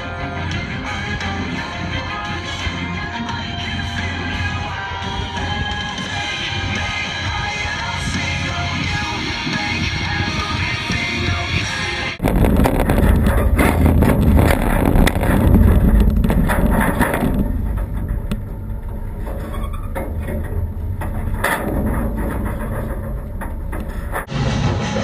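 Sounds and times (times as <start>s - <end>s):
wind buffeting microphone: 3.5s - 24.3s
scattered knocks: 12.2s - 24.3s.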